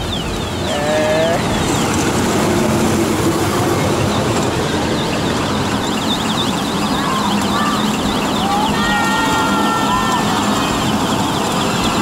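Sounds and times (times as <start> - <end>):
kiddie ride train rumble: 0.0 - 12.0
fast high warbling tone: 3.5 - 12.0.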